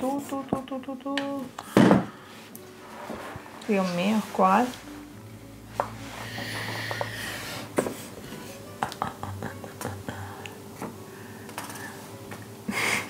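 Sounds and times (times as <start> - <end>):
soft background music: 0.0 - 13.0.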